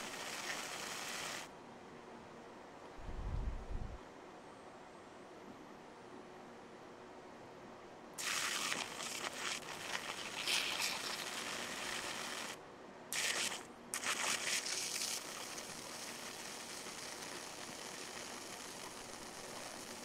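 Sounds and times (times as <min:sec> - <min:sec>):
high-voltage arcs crackling: 0:00.0 - 0:01.5, 0:08.2 - 0:20.0.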